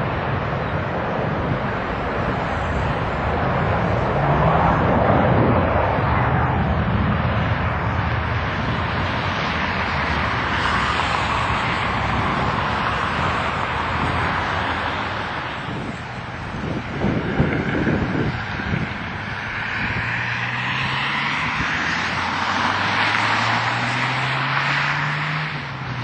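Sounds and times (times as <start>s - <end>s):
jet engines at takeoff power: 0.0s - 26.0s.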